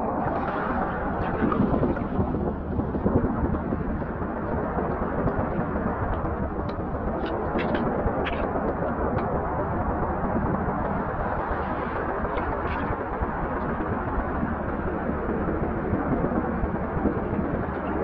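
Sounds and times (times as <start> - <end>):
seawater washing over rocks: 6.1 - 9.3.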